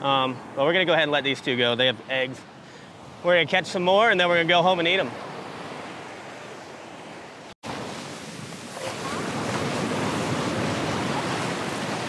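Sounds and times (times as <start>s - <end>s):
ocean surf washing on sand: 2.9s - 12.0s.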